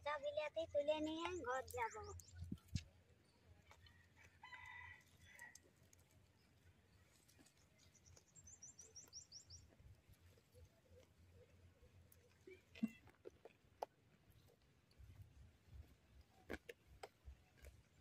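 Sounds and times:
small bird chirping: 0.4 - 3.9, 6.4 - 11.6
distant rooster crowing: 4.0 - 5.6.

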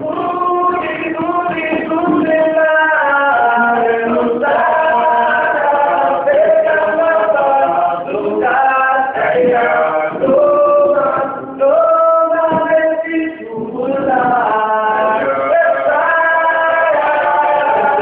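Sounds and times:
choir singing long notes: 0.0 - 18.0.

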